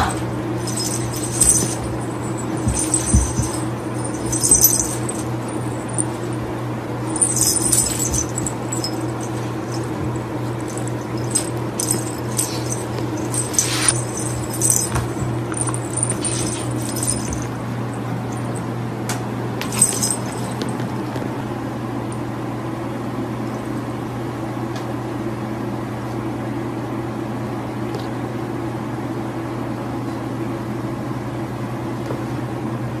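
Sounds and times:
steady low hum: 0:00.0 - 0:25.2
cats scuffling on a rug: 0:00.6 - 0:06.5, 0:07.1 - 0:18.6.

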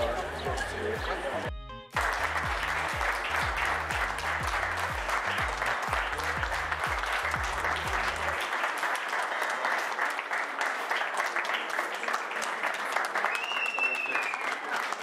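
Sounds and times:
music with bass line: 0:00.0 - 0:08.4
crowd applauding: 0:00.0 - 0:15.0.

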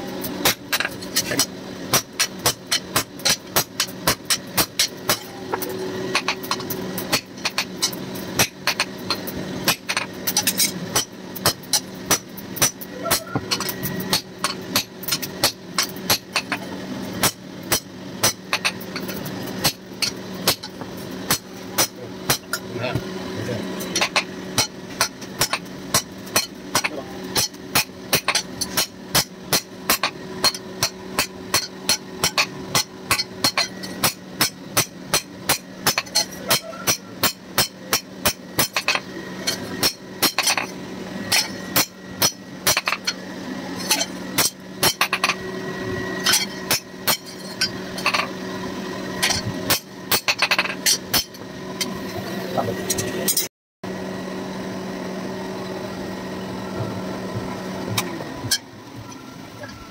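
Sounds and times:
steady hum: 0:00.0 - 0:59.9
hammer striking steel on anvil: 0:23.9 - 0:40.7, 0:43.8 - 0:45.4.

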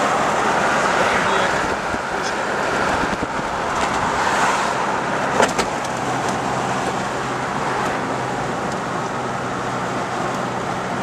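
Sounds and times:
road and engine noise: 0:00.0 - 0:11.0.

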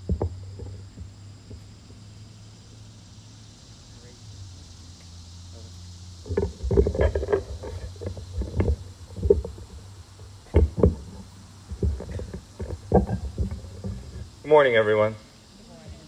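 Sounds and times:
microphone handling thumps: 0:06.2 - 0:14.4.

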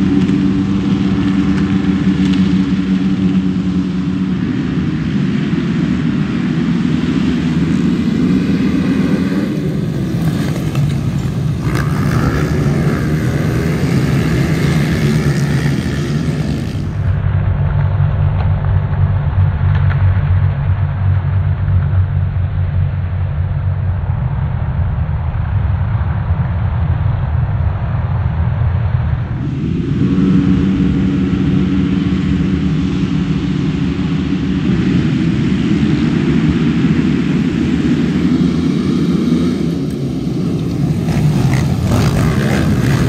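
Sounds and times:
racing quad engines revving: 0:00.0 - 0:17.2, 0:29.3 - 0:43.0.

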